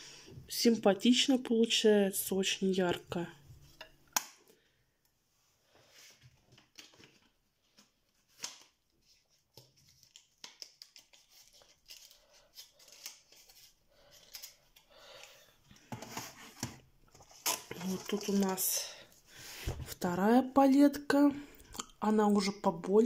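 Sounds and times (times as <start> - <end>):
plastic and cardboard palettes handled: 6.1 - 14.9, 15.6 - 19.0.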